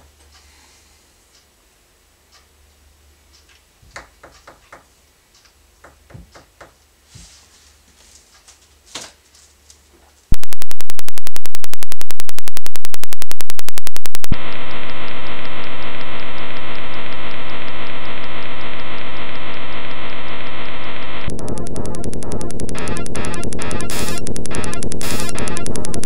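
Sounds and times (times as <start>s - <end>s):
harsh electronic pulsing buzz: 10.3s - 26.0s.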